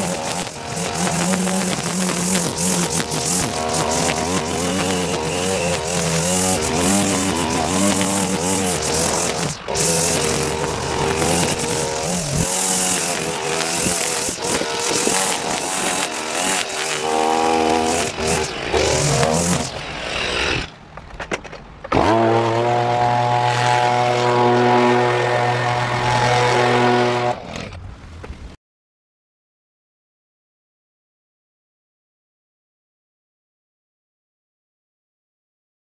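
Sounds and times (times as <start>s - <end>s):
leaf blower running: 0.0s - 20.7s, 22.0s - 27.4s
string trimmer cutting grass: 0.0s - 20.8s, 21.9s - 27.8s.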